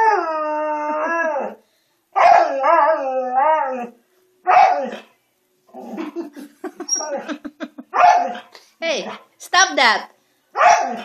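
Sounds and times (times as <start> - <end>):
husky howling: 2.2 - 5.1.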